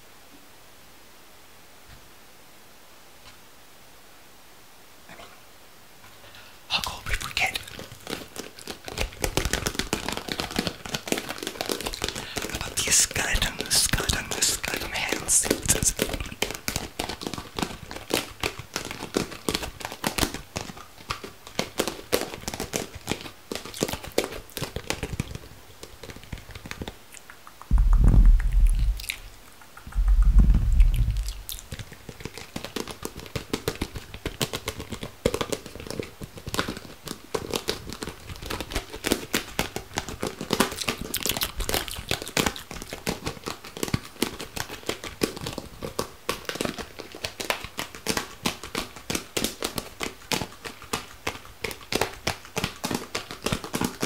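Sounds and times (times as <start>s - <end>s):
rapid crinkling and crackling clicks: 6.1s - 54.0s
low rumbles on microphone: 27.7s - 29.3s, 29.9s - 31.7s.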